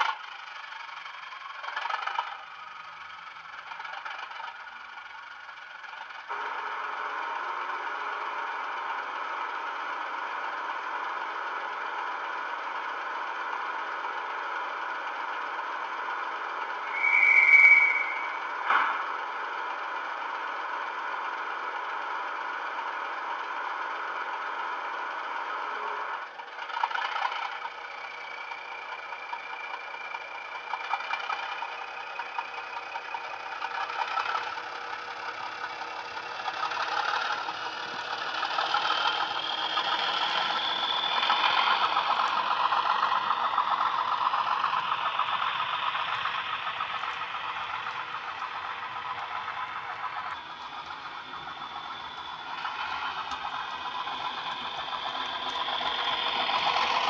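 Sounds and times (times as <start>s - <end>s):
diesel engine sound on small speaker: 0.0s - 57.0s
rising train whistle: 16.8s - 18.9s.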